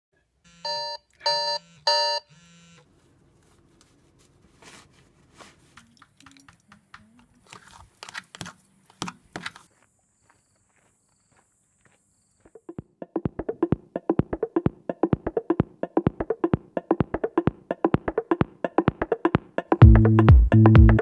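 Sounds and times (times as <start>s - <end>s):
electronic alarm beeping: 0.5s - 2.8s
faint rustling: 2.8s - 6.4s.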